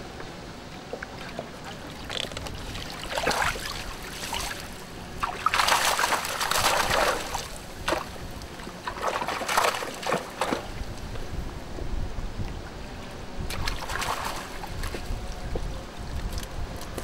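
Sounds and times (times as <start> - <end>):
water splashing off a net: 5.2 - 8.2, 8.8 - 10.7, 13.5 - 14.9.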